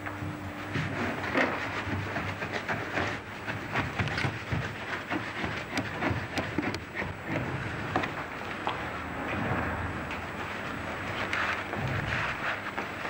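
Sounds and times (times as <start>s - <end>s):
tape hum and hiss: 0.0s - 13.0s
hand tools scraping plaster: 0.6s - 8.3s.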